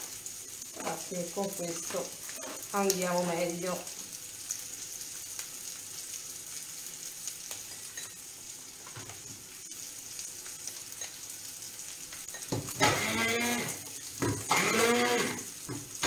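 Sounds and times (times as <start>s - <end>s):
octopus sizzling in oil: 0.0s - 16.0s.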